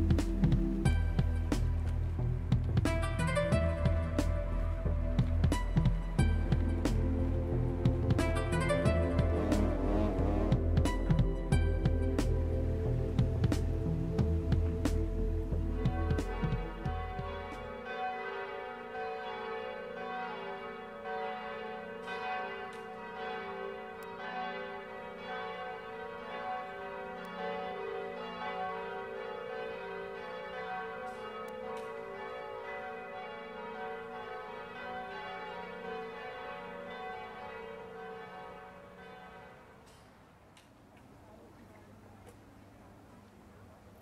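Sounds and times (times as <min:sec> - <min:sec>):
church bells pealing: 0:03.0 - 0:13.1, 0:15.6 - 0:39.8.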